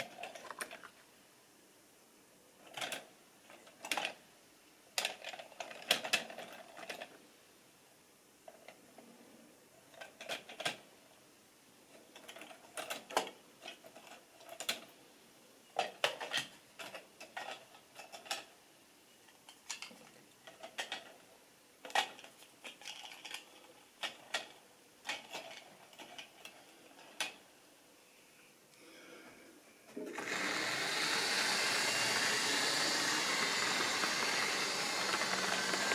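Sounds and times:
model train wheels clicking: 30.1 - 35.9.

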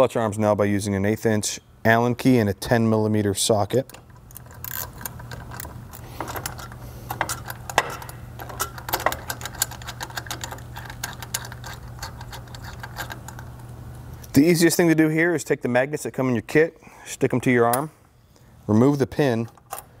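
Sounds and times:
low steady hum: 0.0 - 20.0
ratchet clicking: 4.0 - 13.5.

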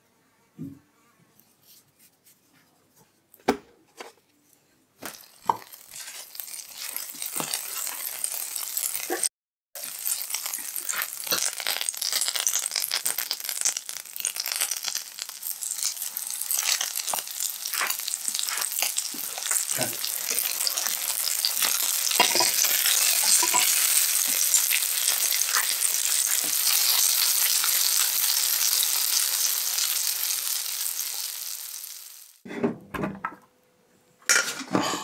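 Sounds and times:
butter sizzling in a frying pan: 5.0 - 32.4.

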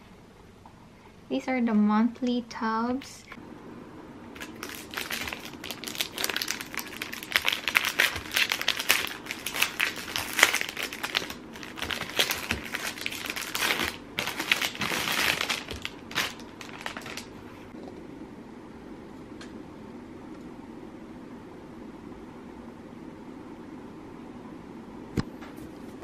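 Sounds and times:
plastic wrap crinkling: 4.4 - 17.6.

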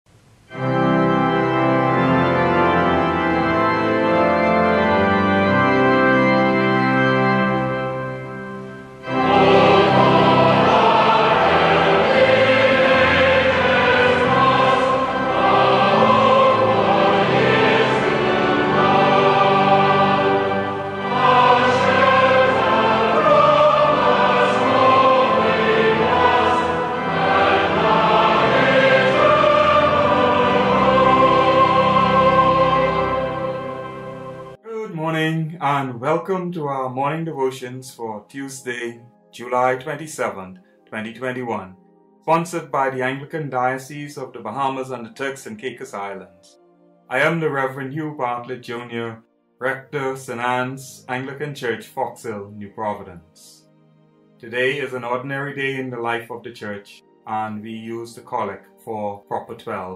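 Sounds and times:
choir singing: 0.5 - 36.0.

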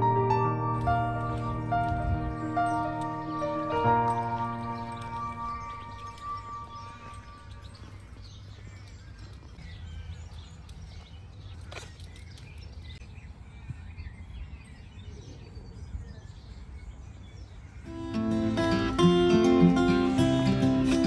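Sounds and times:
small birds chirping: 0.7 - 21.0.

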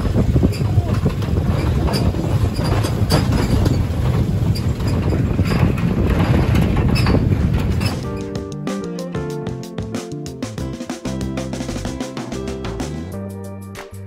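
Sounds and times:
metal truck bed rattling: 0.0 - 8.4
truck engine and road rumble: 0.0 - 8.5.

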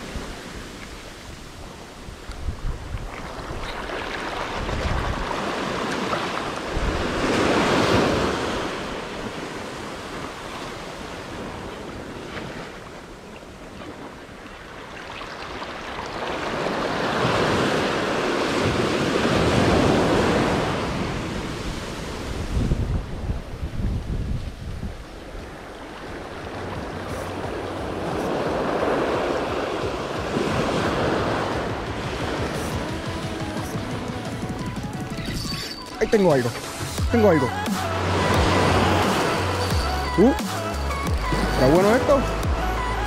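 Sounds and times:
wind buffeting microphone: 0.0 - 12.7, 16.5 - 35.6
small waves breaking on shore: 0.0 - 42.4.

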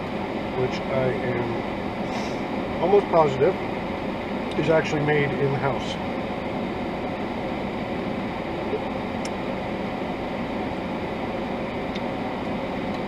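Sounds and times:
car idling hiss and hum: 0.0 - 13.0.

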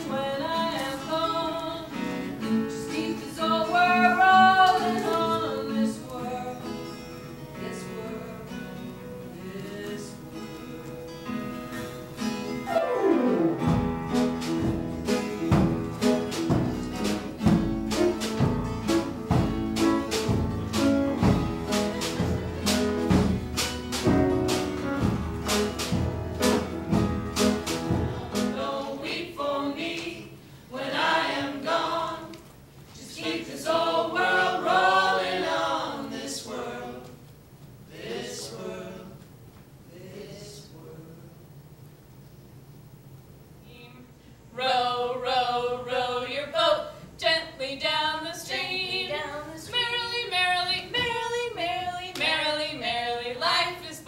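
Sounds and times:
acoustic ensemble music: 0.0 - 40.4.

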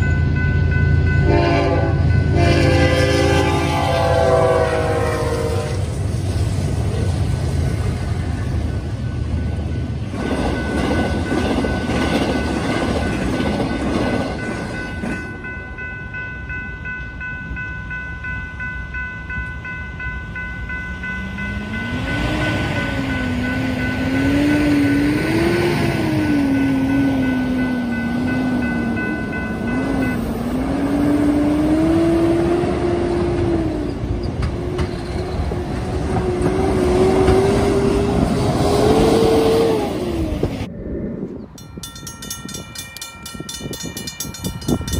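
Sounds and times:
crossing warning bell ringing: 0.0 - 6.1, 8.0 - 34.5, 41.5 - 44.9
freight train passing: 0.0 - 44.9
trucks shifting through gears: 21.2 - 40.7.

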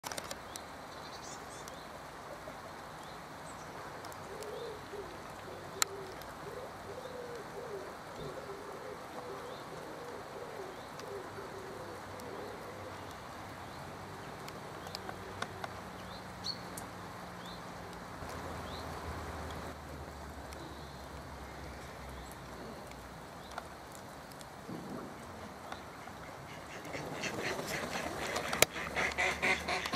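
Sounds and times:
low wavering cooing call: 4.3 - 13.1.

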